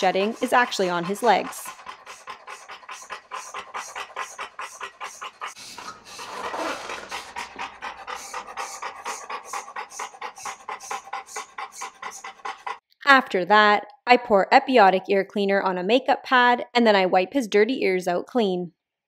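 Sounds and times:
dog panting: 0.0s - 12.8s.

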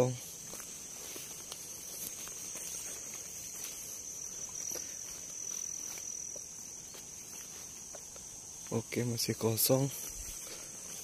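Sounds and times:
insects trilling: 0.0s - 11.0s
rustles in dry grass: 0.0s - 11.0s.

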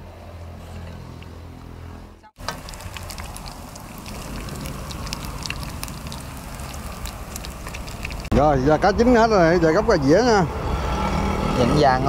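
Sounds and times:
fish frying in sizzling oil: 2.4s - 8.3s.

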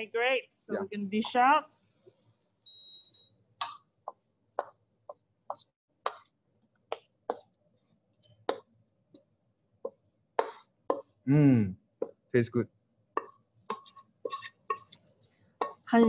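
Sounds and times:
wooden spoon scraping a wok: 13.2s - 15.9s.

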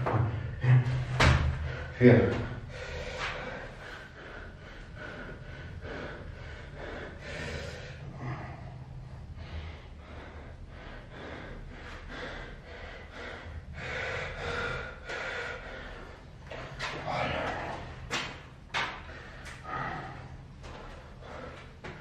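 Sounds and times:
man panting: 0.0s - 22.0s.

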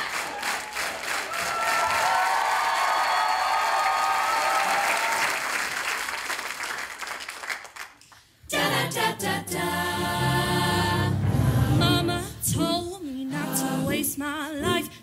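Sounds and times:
audience applause and cheering: 0.0s - 8.1s
amplified choir singing: 8.5s - 14.8s.

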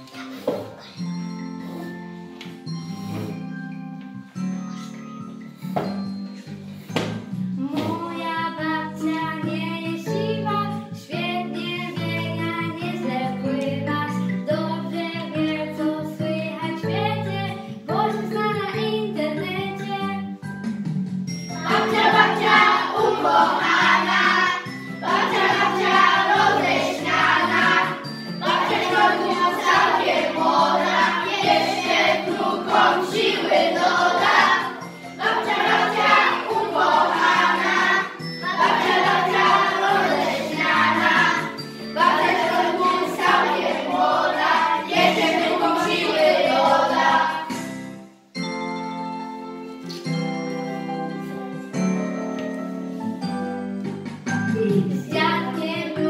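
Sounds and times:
instrumental accompaniment: 0.0s - 9.8s, 20.2s - 55.8s
children singing: 21.6s - 47.6s, 54.8s - 56.0s.

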